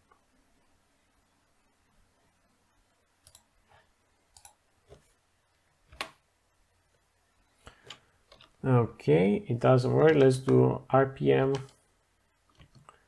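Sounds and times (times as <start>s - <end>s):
keyboard and mouse clicks: 3.2s - 3.5s, 4.3s - 5.1s, 5.9s - 6.2s, 7.7s - 8.6s, 10.0s - 10.6s, 11.4s - 11.8s, 12.5s - 13.0s.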